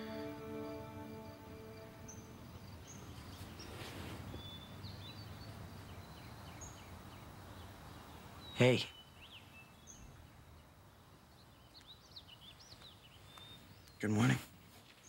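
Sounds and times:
soft score music: 0.0s - 3.7s
low background noise: 0.0s - 15.0s.

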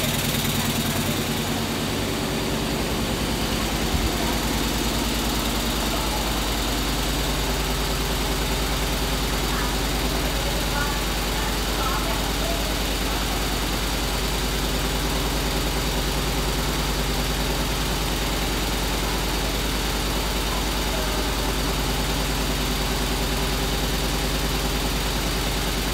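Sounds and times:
steady low hum: 0.0s - 14.2s.

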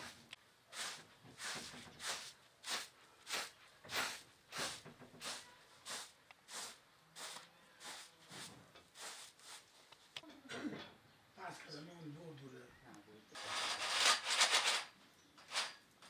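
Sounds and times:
straw broom sweeping carpet: 0.0s - 10.0s.

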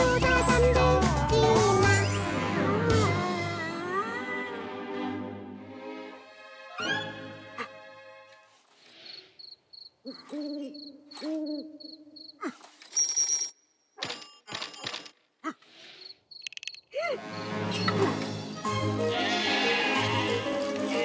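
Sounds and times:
music: 0.0s - 8.5s, 17.2s - 21.0s
cricket chirping: 9.0s - 12.4s, 16.0s - 17.5s.

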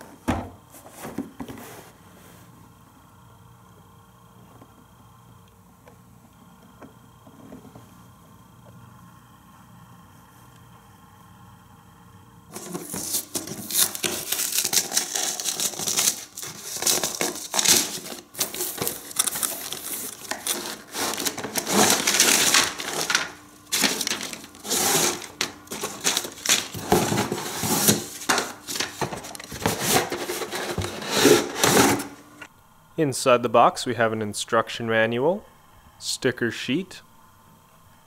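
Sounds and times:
plastic bags crinkling: 12.5s - 32.1s
plastic pieces clattering: 12.5s - 32.1s
cardboard scraping and flexing: 12.5s - 32.2s
paper rustling: 12.5s - 32.2s.

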